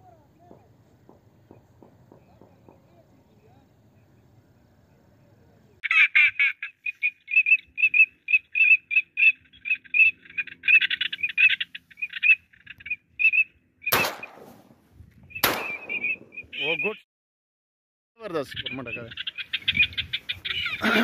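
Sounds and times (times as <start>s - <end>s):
ducks calling: 5.8s - 14.2s, 15.4s - 17.0s, 18.4s - 21.0s
shotgun shot: 13.9s - 14.7s, 15.4s - 16.4s.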